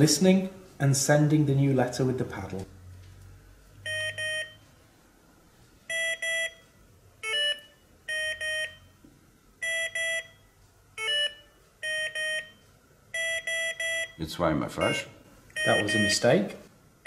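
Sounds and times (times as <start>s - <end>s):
morse code dashes beeping: 3.8s - 4.6s, 5.9s - 9.0s, 9.6s - 16.4s
short beep of another pitch: 14.8s - 16.2s.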